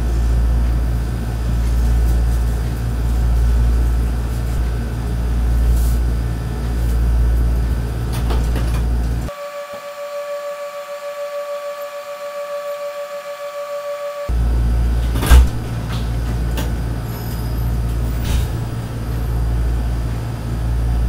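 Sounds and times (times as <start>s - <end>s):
loud low rumbling: 0.0s - 9.3s, 14.3s - 21.0s.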